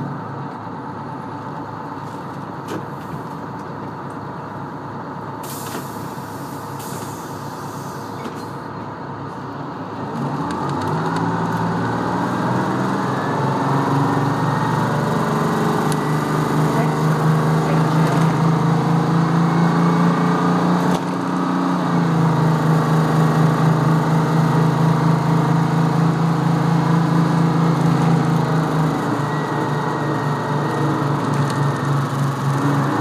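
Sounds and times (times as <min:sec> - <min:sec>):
bus diesel engine: 0:00.0 - 0:33.0.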